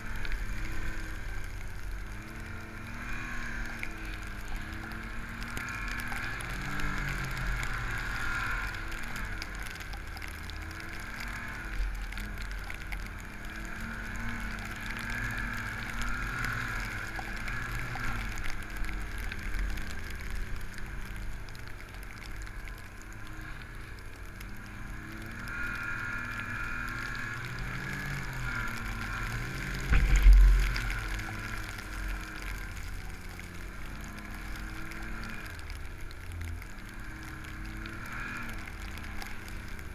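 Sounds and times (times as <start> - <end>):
snowmobile engine revving: 0.0 - 1.3, 2.2 - 9.2, 10.8 - 11.6, 13.5 - 18.2, 24.6 - 32.3
loud low thump: 29.9 - 30.7.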